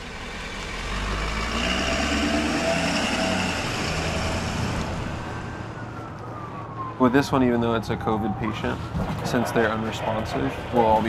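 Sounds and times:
truck engine and tyres driving past: 0.0 - 7.2.

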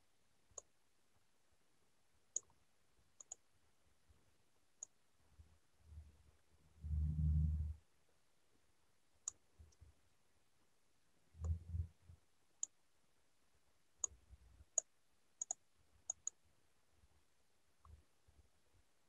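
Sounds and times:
mouse clicks: 0.5 - 0.7, 2.3 - 2.6, 3.2 - 3.4, 9.2 - 9.8, 14.0 - 16.4.

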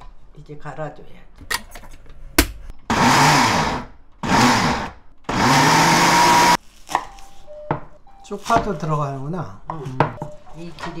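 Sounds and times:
blender grinding: 2.9 - 6.6.

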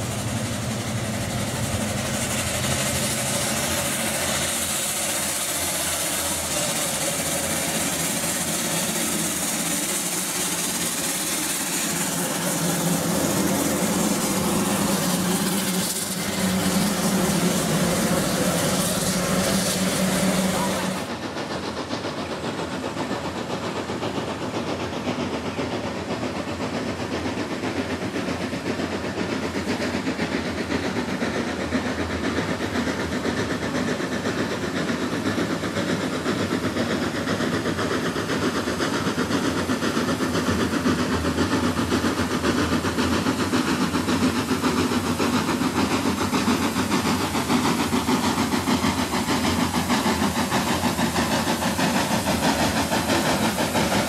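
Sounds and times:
hissing steam: 0.0 - 54.0
steam engine exhaust beat: 0.0 - 54.0.

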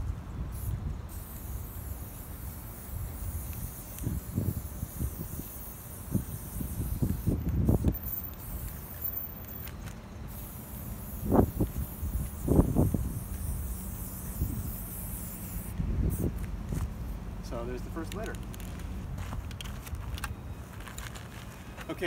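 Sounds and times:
wind rumble on microphone: 0.0 - 1.9, 2.8 - 9.6, 11.1 - 14.9, 15.5 - 17.2
spray paint can hissing: 0.5 - 17.1.

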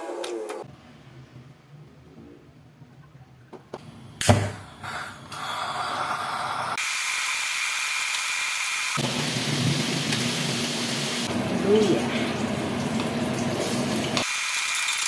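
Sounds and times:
meat sizzling in a wok: 6.4 - 11.3, 12.4 - 15.0.

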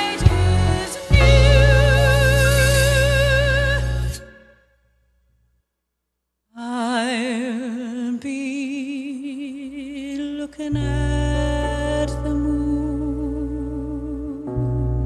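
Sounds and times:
deep bass: 0.0 - 4.3, 10.8 - 15.0
woman singing with vibrato: 0.0 - 4.5, 6.6 - 14.8.

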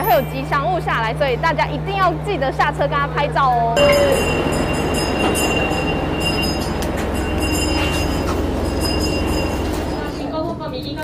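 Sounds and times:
hand bell ringing: 0.0 - 0.7, 3.8 - 10.3
diesel railcar idling hum: 0.0 - 11.0.

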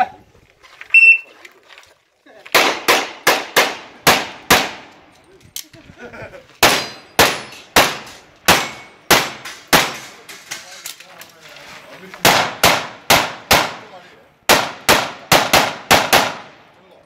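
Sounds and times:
pistol shots: 2.6 - 4.9, 6.6 - 10.2, 12.2 - 13.8, 14.5 - 16.5.

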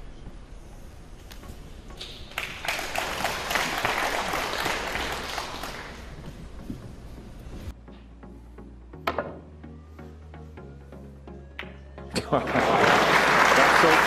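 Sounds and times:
audience applauding: 2.3 - 6.2, 12.4 - 14.0.

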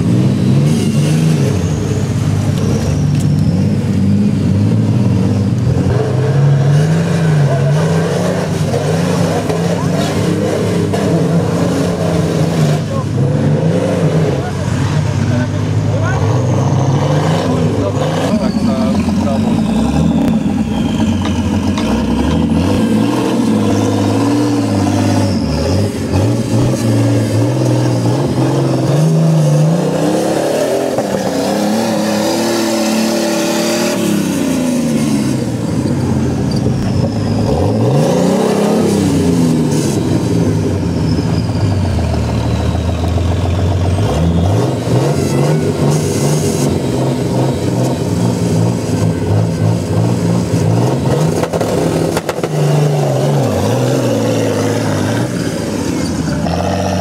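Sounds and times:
off-road vehicle engine revving: 0.0 - 57.0.

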